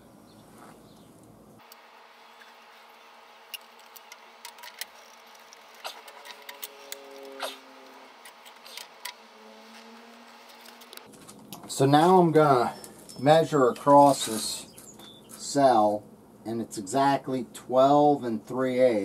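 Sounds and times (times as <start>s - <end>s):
short rising squeak: 5.8s - 10.8s.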